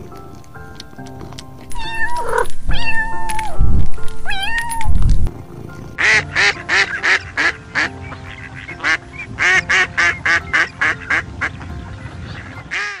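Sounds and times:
geese honking: 6.0 - 13.0.

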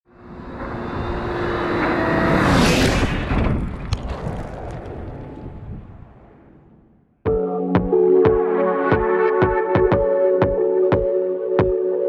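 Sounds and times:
vehicle passing by: 0.1 - 6.6.

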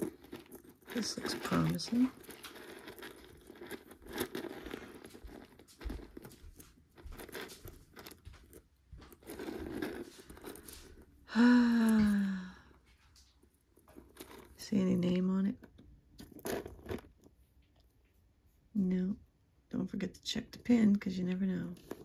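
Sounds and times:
plastic bag crinkling: 0.0 - 15.6, 16.2 - 17.3.

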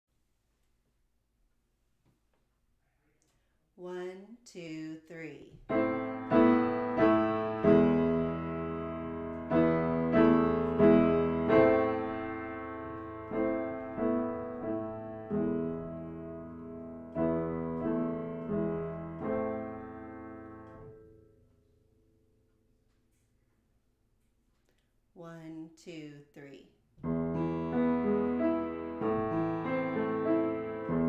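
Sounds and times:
piano chords and notes: 5.7 - 21.9, 27.0 - 31.0.

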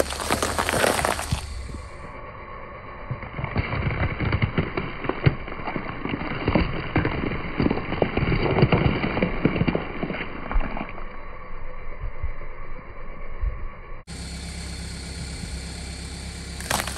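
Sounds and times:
peppers crackling under car tyre: 0.0 - 2.2, 3.1 - 11.5, 16.6 - 16.9.

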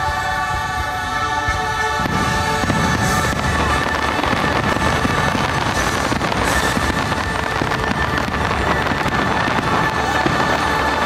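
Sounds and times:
faint music: 0.0 - 11.0
fireworks bangs and crackles: 0.0 - 11.0.

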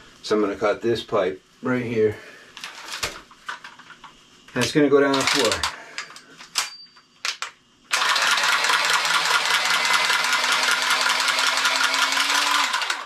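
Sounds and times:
cutter motor running: 7.9 - 13.0.

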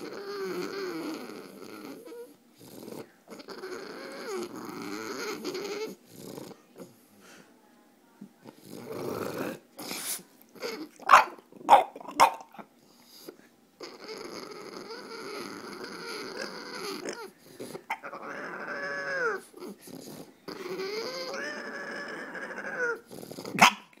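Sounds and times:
dog whining moans: 0.0 - 6.9, 10.5 - 11.0, 13.0 - 23.7.

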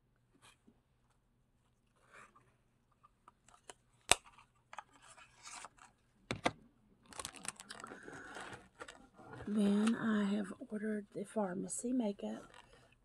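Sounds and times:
packaging rustling and crinkling: 7.1 - 10.0.

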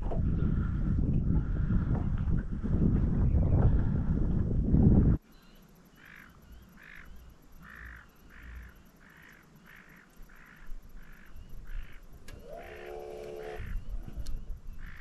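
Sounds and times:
bird calling: 5.2 - 15.0.

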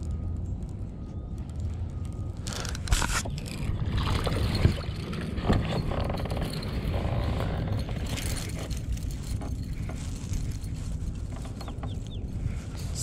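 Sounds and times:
wind rumbling on microphone: 0.0 - 13.0
water lapping against hull: 2.6 - 12.9.

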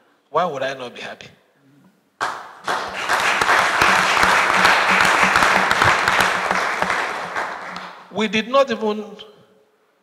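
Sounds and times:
audience applauding: 2.2 - 8.1.

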